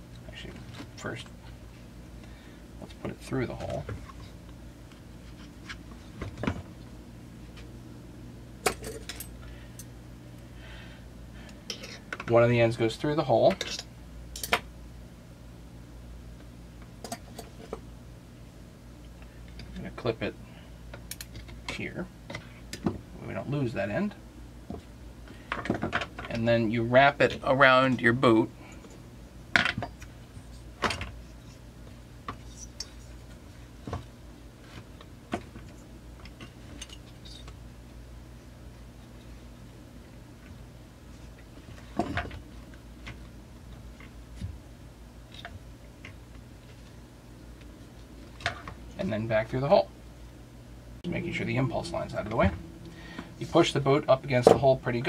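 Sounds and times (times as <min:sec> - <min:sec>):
steady low hum: 0:00.0 - 0:55.0
low hum: 0:46.8 - 0:55.0.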